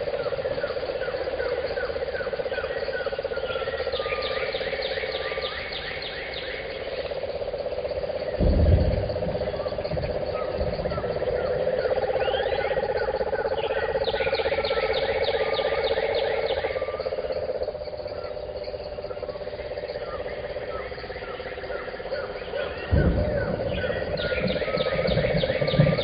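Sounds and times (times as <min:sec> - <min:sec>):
birds chirping and singing: 0:00.0 - 0:26.0
insects trilling: 0:00.0 - 0:26.0
low thump: 0:08.4 - 0:11.3, 0:22.9 - 0:26.0.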